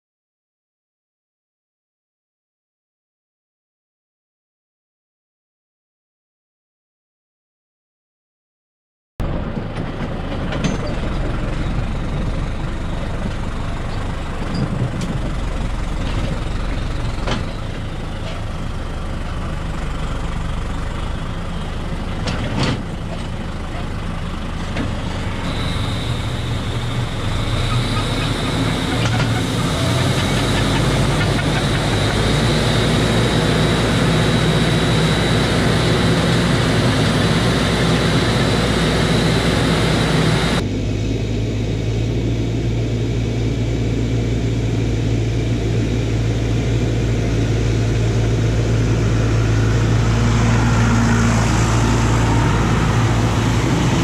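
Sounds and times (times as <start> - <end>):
low engine hum: 9.2 - 54.0
tractor sprayer fans running: 9.3 - 54.0
high whine: 23.5 - 54.0.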